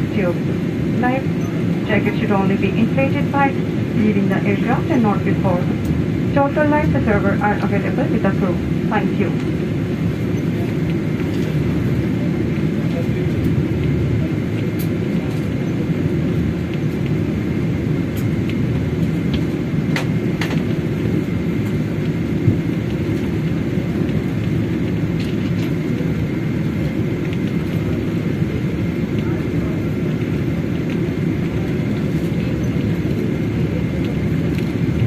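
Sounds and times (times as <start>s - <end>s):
airplane taxiing rumble: 0.0s - 35.0s.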